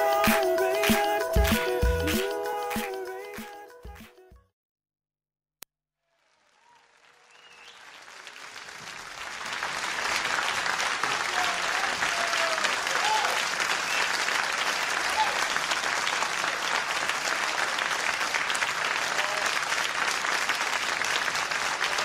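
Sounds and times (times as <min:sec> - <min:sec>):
crowd applause: 0:06.1 - 0:22.0.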